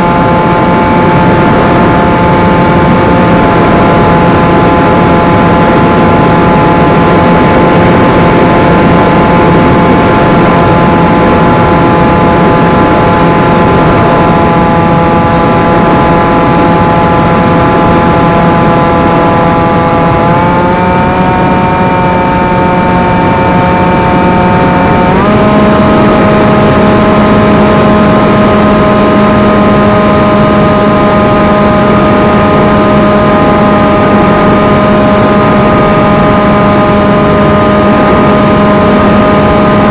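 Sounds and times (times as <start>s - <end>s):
electric motor and propeller drone: 0.0s - 39.9s
rushing wind: 0.0s - 39.9s.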